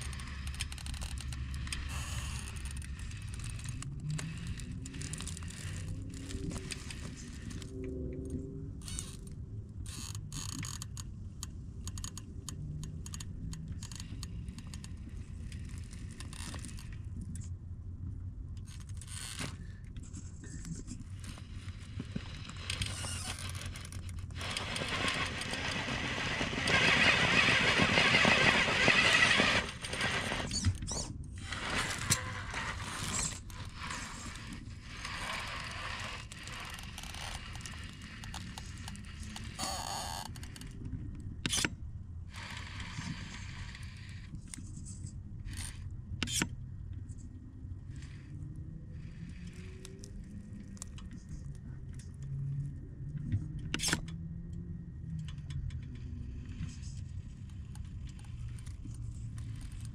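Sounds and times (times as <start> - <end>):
electric drivetrain whirring: 0.0 - 9.3, 21.0 - 41.6, 42.3 - 44.5, 47.9 - 51.6
tyres scraping and clicking on stone: 19.4 - 39.7.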